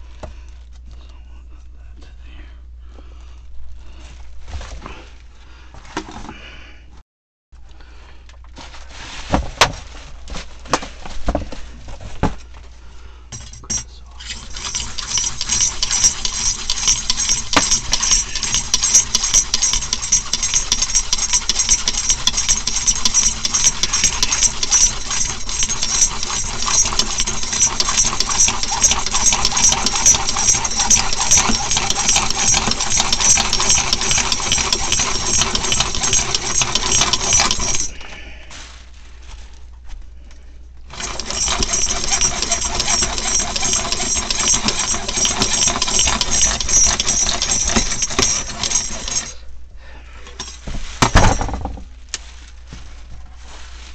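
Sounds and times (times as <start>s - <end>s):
saw cutting plastic pipe: 13.7s - 38.0s, 40.9s - 49.4s.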